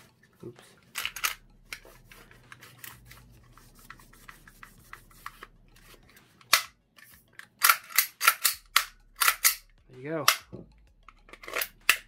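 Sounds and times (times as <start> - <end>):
small clicks and rubbing: 0.7 - 9.6.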